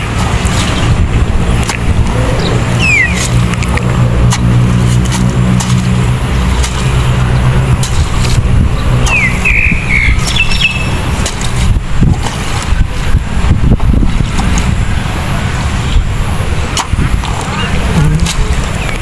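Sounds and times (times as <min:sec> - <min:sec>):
hoe knocking in wet mud: 0:00.0 - 0:13.0, 0:16.7 - 0:19.0
low engine-like hum: 0:00.0 - 0:19.0
steady low rumble: 0:00.0 - 0:19.0
bird chirping: 0:02.2 - 0:03.4, 0:08.7 - 0:11.0.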